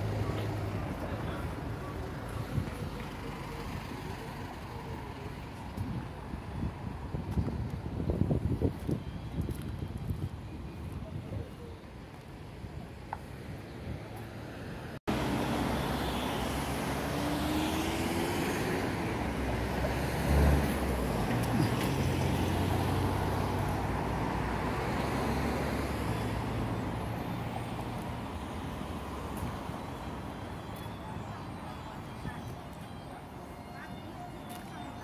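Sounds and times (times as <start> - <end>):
traffic driving past: 13.1 - 35.0
vehicle passing close: 15.1 - 27.8.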